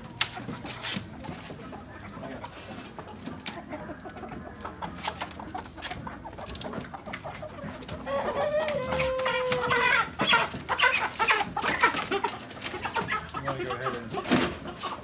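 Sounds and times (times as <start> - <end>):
chickens clucking: 0.0 - 15.0
clicks and knocks of crates: 2.4 - 15.0
chicken long drawn-out call: 8.0 - 10.5.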